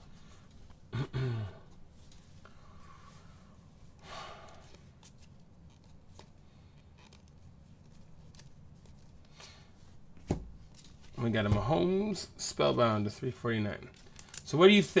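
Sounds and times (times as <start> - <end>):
cards clicking and rubbing: 4.6 - 9.6.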